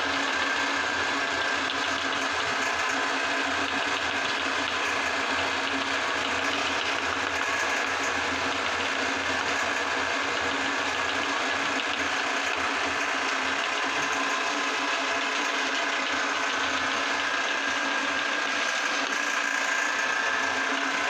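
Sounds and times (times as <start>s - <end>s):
electric meat grinder motor running: 0.0s - 21.0s.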